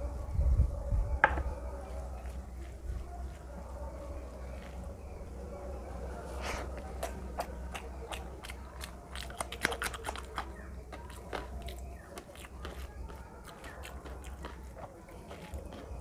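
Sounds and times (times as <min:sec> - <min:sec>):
wet chewing and lip smacks: 0:06.6 - 0:16.0.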